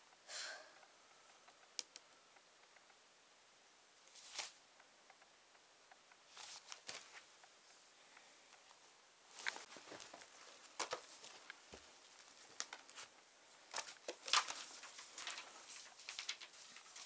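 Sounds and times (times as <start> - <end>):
paper rustling and pages turning: 4.1 - 4.6, 6.3 - 7.3, 8.7 - 17.0.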